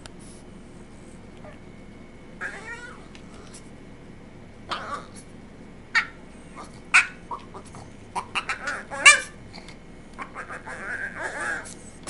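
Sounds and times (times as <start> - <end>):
dog whining: 2.4 - 3.6, 4.7 - 5.3, 5.9 - 9.4, 10.2 - 12.0.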